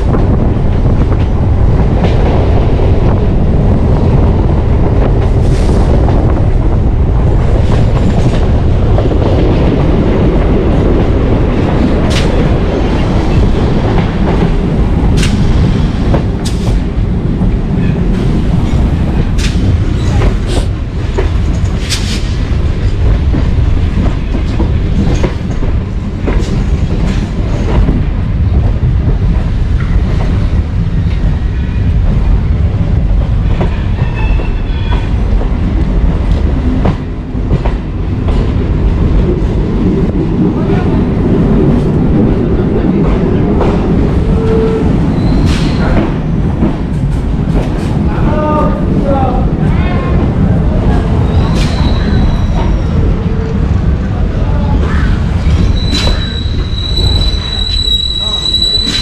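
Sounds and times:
train rumbling: 0.0s - 59.0s
train wheels squealing: 33.7s - 35.1s, 44.3s - 46.0s, 51.2s - 53.0s, 54.8s - 59.0s.

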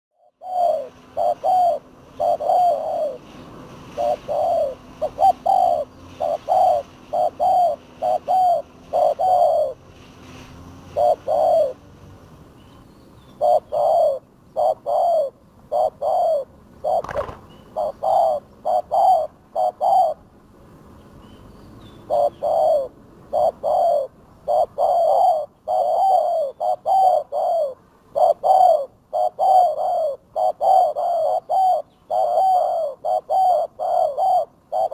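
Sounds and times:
doves cooing: 0.2s - 9.9s, 10.8s - 11.9s, 13.4s - 20.3s, 22.0s - 34.9s.

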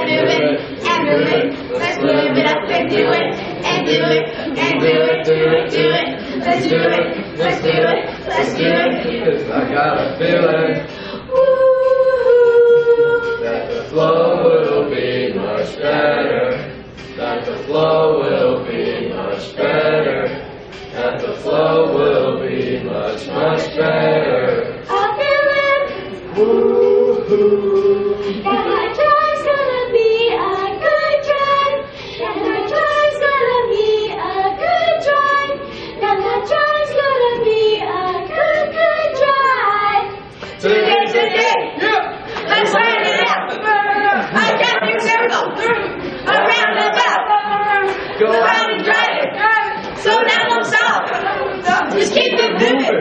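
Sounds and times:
children singing unaccompanied: 0.0s - 53.0s.

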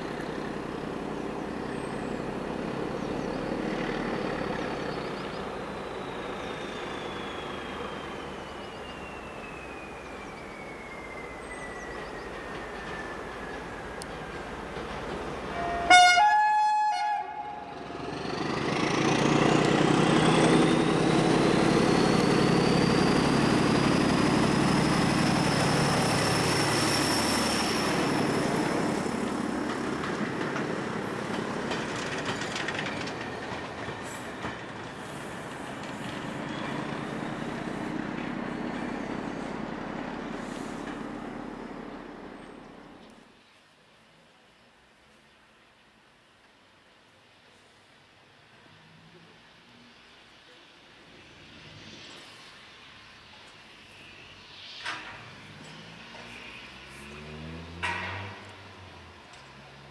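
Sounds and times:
locomotive diesel engine whining: 0.0s - 43.1s
two-note train horn: 15.5s - 17.8s
wagons clicking over rail joints: 29.2s - 34.9s.

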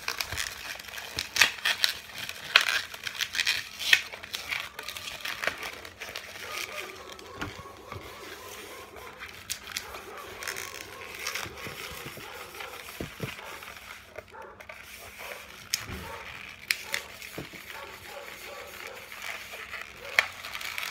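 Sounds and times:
balloons squeaking as twisted: 0.0s - 20.9s.

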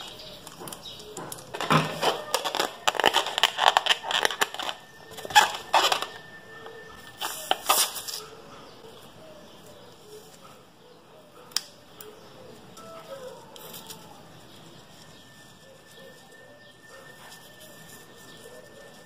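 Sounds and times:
rubber balloon crackling: 1.5s - 6.4s.

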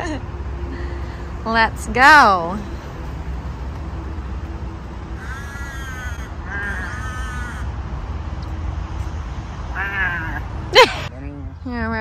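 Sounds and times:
bird calling: 5.2s - 7.7s.

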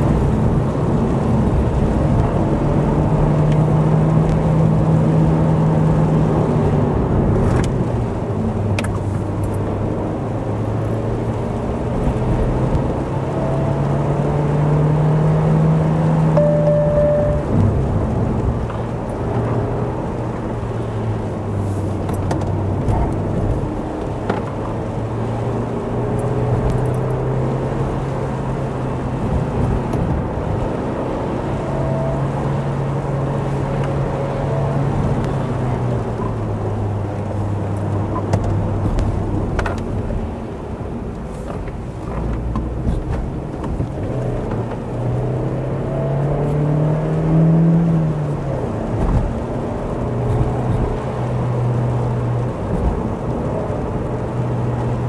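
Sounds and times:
tyre noise on wet road: 0.0s - 55.0s
car engine running: 14.7s - 30.7s.

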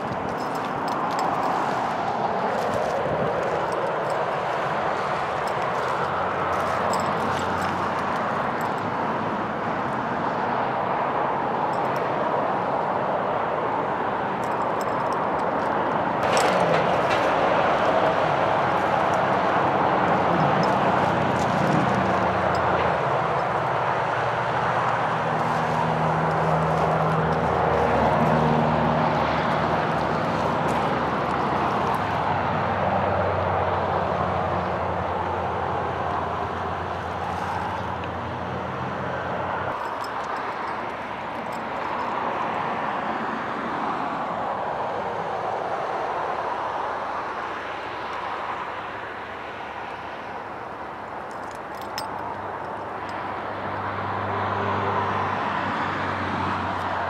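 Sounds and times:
low engine hum: 0.0s - 43.4s
road traffic passing: 0.0s - 57.0s.

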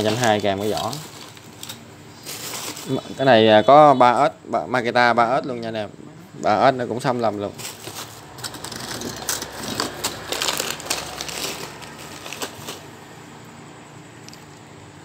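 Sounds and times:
plastic bags crinkling: 0.0s - 3.2s, 7.4s - 13.1s
small parts clicking: 14.2s - 14.6s.

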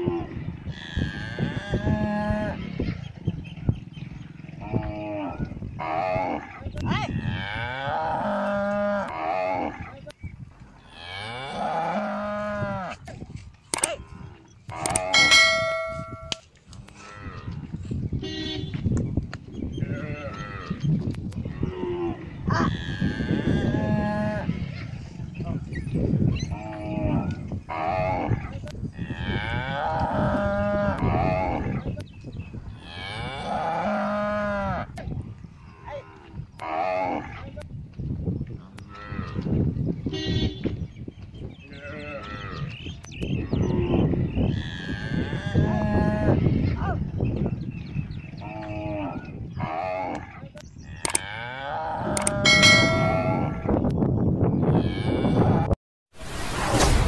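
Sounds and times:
cattle mooing: 14.8s - 16.4s, 51.0s - 53.7s.

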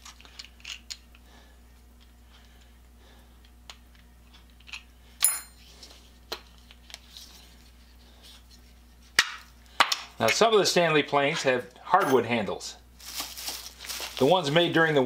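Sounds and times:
metal piece clinking on bench: 4.7s - 5.6s, 12.0s - 12.2s
plastic bag rustling: 13.0s - 15.0s.

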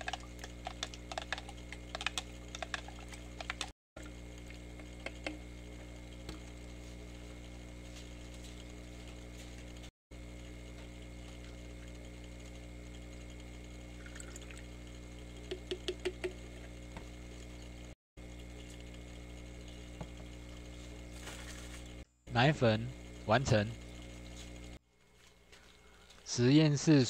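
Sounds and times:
liquid pouring into a plastic bottle: 0.0s - 5.2s, 13.3s - 14.9s
low hum: 0.0s - 26.3s.

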